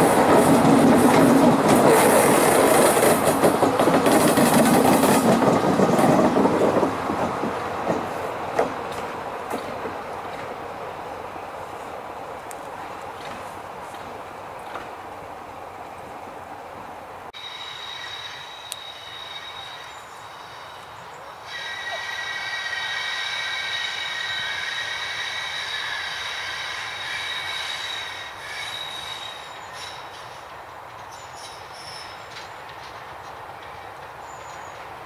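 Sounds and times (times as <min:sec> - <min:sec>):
train wheels squealing on rails: 0:17.4 - 0:35.0.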